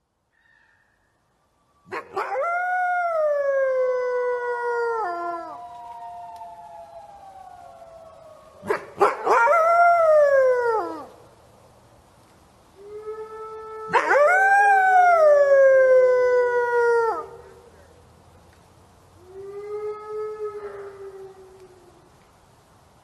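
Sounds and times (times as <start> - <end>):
wolf howling: 1.8 - 11.1, 12.8 - 17.4.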